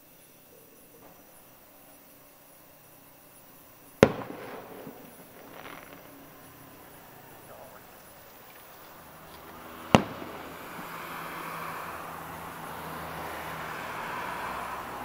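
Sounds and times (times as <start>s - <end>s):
firework hiss: 3.3s - 15.0s
firework bang: 4.0s - 7.9s, 9.8s - 11.0s.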